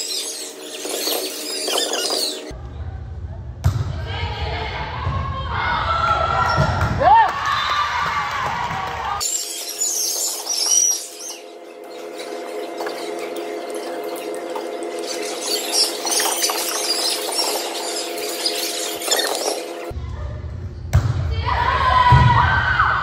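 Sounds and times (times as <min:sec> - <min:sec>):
sneakers squeaking on gym floor: 0:00.0 - 0:02.5, 0:09.2 - 0:19.9.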